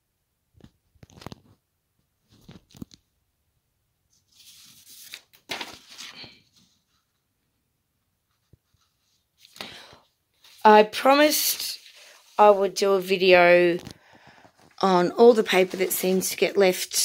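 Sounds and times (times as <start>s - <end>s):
paper rustling and crackling: 1.0s - 1.6s, 2.2s - 3.0s, 4.1s - 7.3s, 8.3s - 17.0s.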